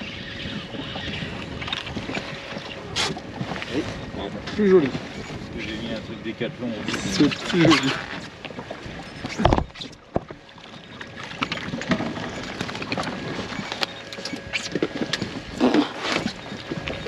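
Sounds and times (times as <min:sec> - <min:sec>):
wind on microphone: 0:00.0 - 0:10.4
water lapping against boat hull: 0:00.0 - 0:17.0.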